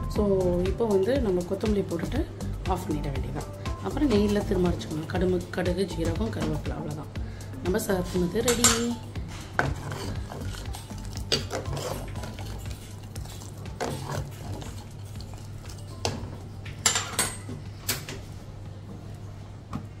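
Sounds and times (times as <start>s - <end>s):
ladle clinking against clay pot: 8.4s - 9.0s, 9.6s - 16.2s.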